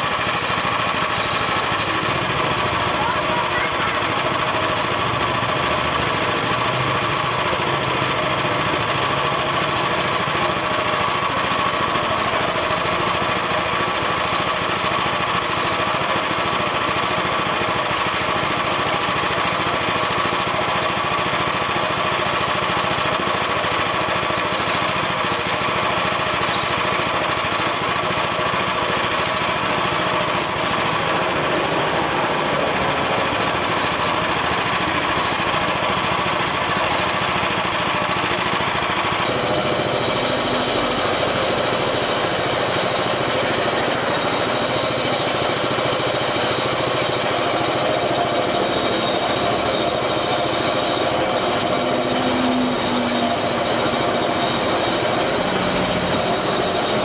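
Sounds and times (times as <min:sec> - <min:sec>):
air compressor running: 0:00.0 - 0:57.0
spray gun hissing: 0:29.2 - 0:29.5, 0:39.3 - 0:39.7, 0:41.8 - 0:43.5.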